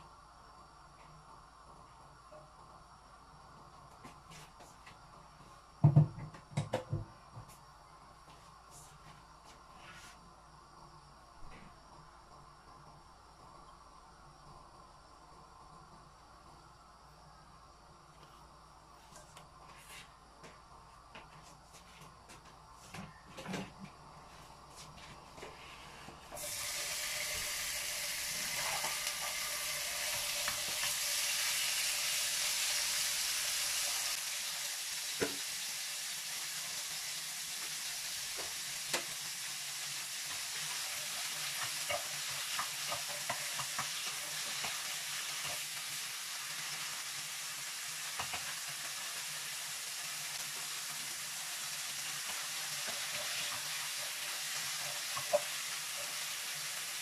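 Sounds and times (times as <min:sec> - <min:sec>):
meat sizzling in hot oil: 0:26.4 - 0:57.0.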